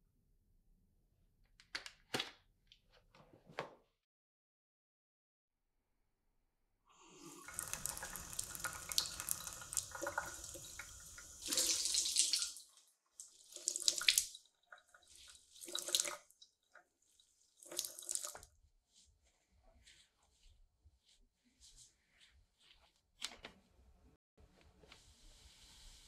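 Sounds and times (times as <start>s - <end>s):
tap water running into sink: 7.2s - 16.3s.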